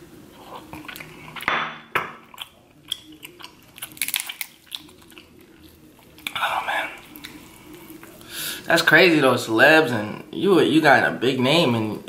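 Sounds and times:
wet chewing and mouth clicks: 0:00.5 - 0:01.5, 0:02.2 - 0:08.2.

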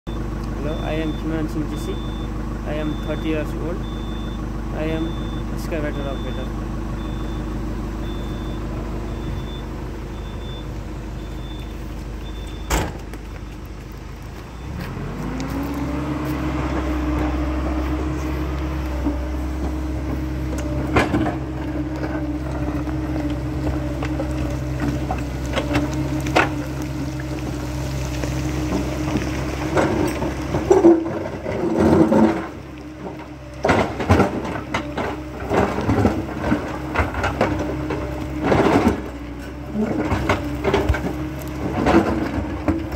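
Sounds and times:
excavator diesel engine running: 0:00.1 - 0:42.9.

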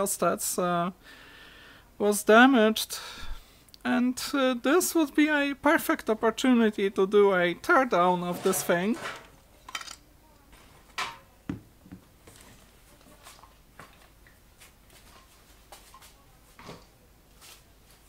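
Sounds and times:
objects knocking on workbench: 0:11.0 - 0:12.1.

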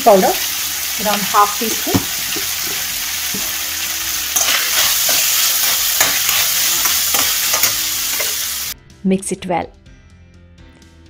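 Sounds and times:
vegetables sizzling in oil: 0:00.0 - 0:08.8
steel spoon scraping pan: 0:04.3 - 0:08.7.

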